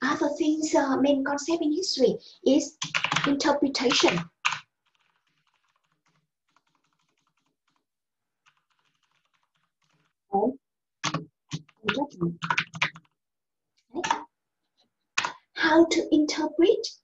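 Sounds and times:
person speaking: 0.0s - 4.3s, 10.3s - 12.8s, 13.8s - 14.3s
keyboard key clicks: 11.0s - 11.7s.

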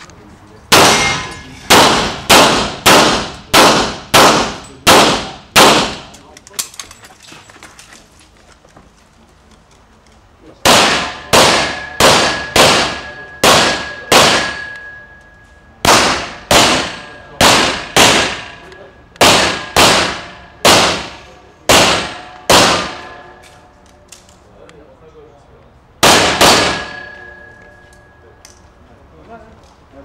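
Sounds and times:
pistol shots: 0.7s - 6.2s, 10.6s - 15.0s, 15.8s - 23.4s, 26.0s - 27.6s.

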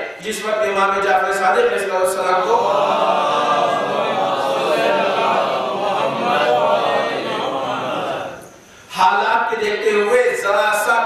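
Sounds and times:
congregation chanting in unison: 1.6s - 8.6s.

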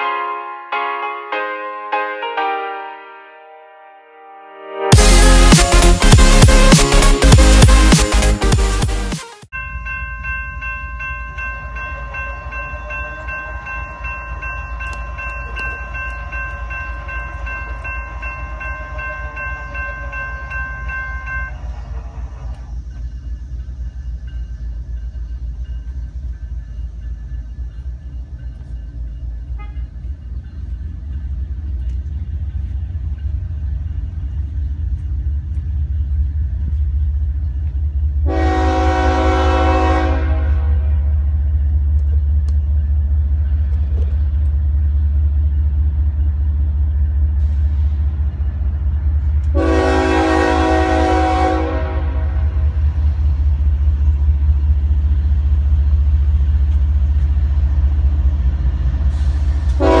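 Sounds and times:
diesel locomotive engine rumble: 4.9s - 60.0s
train air horn blasts: 29.6s - 29.9s, 38.2s - 41.3s, 49.5s - 52.6s, 59.1s - 60.0s.

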